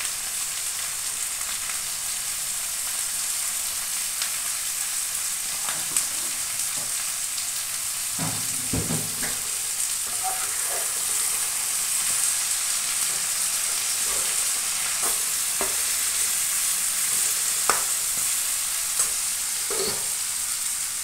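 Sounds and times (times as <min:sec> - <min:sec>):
vegetables sizzling in a pan: 0:00.0 - 0:21.0
metal spatula scraping a pan: 0:09.2 - 0:16.4, 0:19.0 - 0:20.2.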